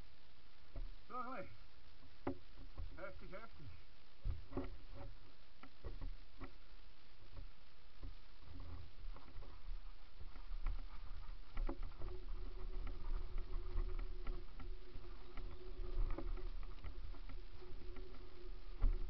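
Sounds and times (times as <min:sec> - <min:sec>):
steady hum: 0:00.0 - 0:19.0
bike knocking and rattling: 0:07.4 - 0:19.0.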